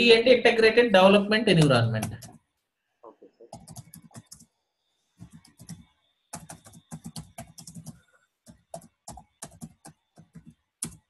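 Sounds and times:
computer keyboard typing: 0:02.0 - 0:02.5, 0:03.4 - 0:04.6, 0:05.2 - 0:11.0.

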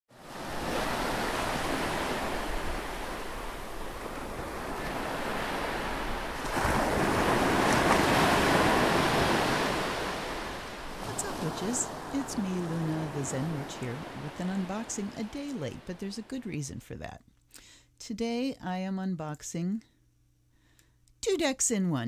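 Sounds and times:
ocean surf washing: 0:00.1 - 0:16.2.

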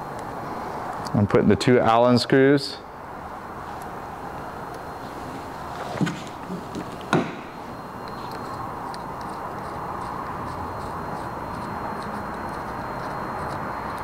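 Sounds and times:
faint high whine: 0:00.0 - 0:14.0
workshop hum: 0:00.0 - 0:14.0.

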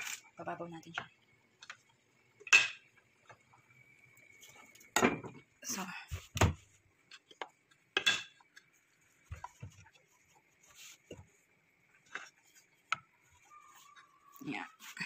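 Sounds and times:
metal pot and utensils clinking: 0:08.0 - 0:08.4.

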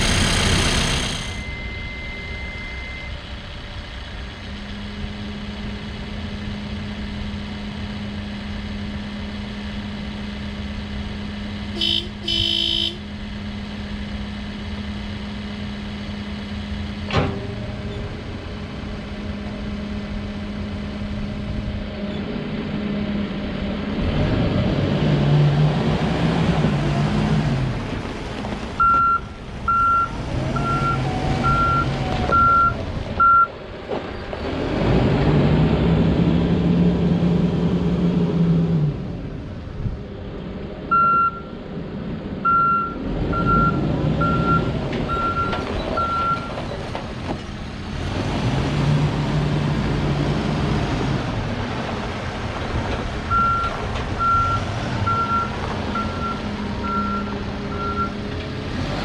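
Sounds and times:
diesel engine idling and revving: 0:00.0 - 0:59.0
reversing alarm beeping: 0:01.1 - 0:03.4, 0:28.8 - 0:33.5, 0:40.9 - 0:41.5, 0:42.4 - 0:46.5, 0:53.3 - 0:58.2
horn blast: 0:11.7 - 0:13.1.

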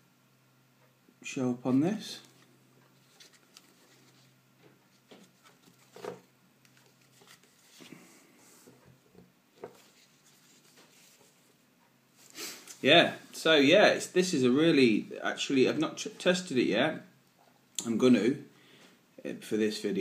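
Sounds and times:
plastic headlamp handling noise: 0:05.1 - 0:07.8.

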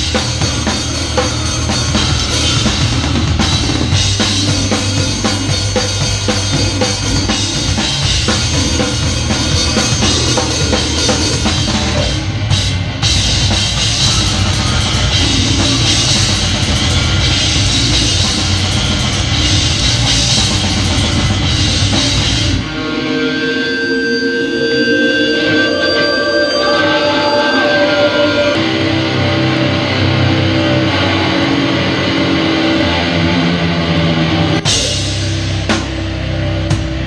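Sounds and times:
drums and cymbals: 0:00.0 - 0:23.2, 0:34.6 - 0:37.0
metal band playing live: 0:00.0 - 0:37.0
held ringing tone: 0:22.7 - 0:28.6.

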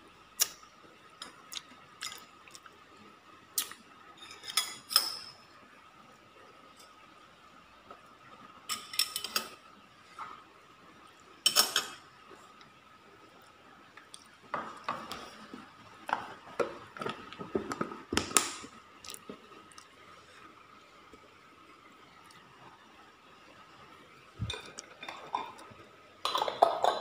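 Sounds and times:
metal spoons clinking on ceramic: 0:08.7 - 0:09.6, 0:11.5 - 0:12.0.

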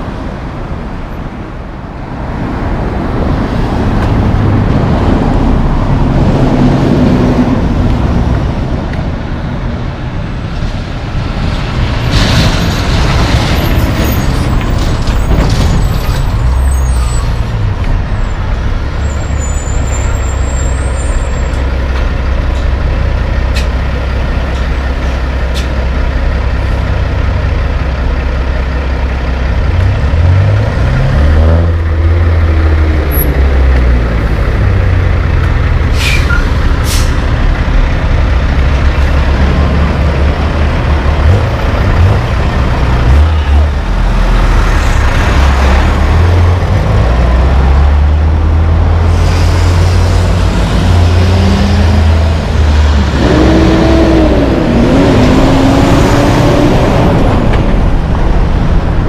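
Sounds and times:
diesel trucks driving by: 0:00.0 - 0:59.0
truck engine revving: 0:36.5 - 0:59.0.

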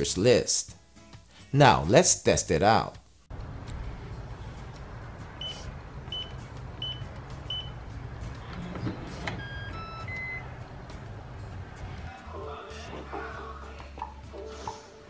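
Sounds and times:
electronic unlock tones: 0:08.5 - 0:10.5.

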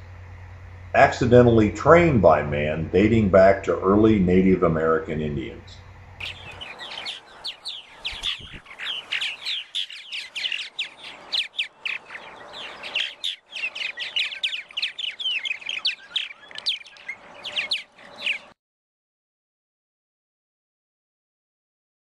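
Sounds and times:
birds chirping and chattering: 0:01.0 - 0:18.6.

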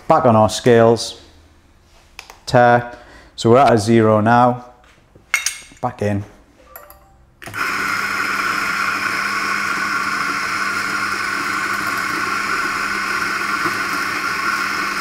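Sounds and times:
coffee grinder whirring: 0:07.4 - 0:15.0.

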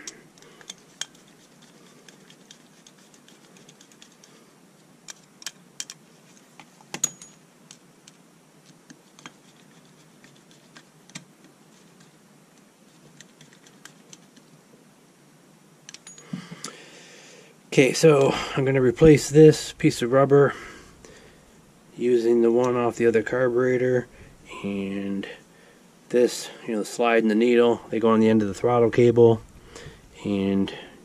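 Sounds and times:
small metal parts clicking: 0:00.0 - 0:04.4, 0:05.0 - 0:07.8, 0:15.9 - 0:16.8.

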